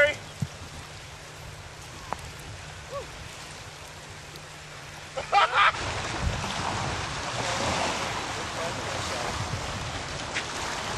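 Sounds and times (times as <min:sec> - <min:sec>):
man whooping: 0:02.8 - 0:03.1
wind noise on microphone: 0:05.8 - 0:10.9.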